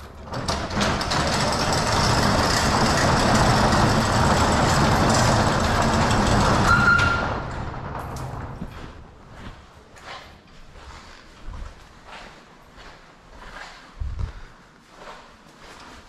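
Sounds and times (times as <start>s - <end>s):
door squealing: 0.0s - 8.6s
metal roll-up door rattling: 0.0s - 9.2s.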